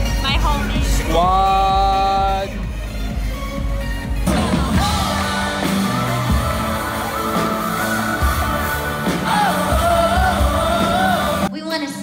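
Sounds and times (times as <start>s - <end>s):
worship band playing: 0.0s - 11.5s
drums: 0.0s - 12.0s
person singing: 4.3s - 11.5s.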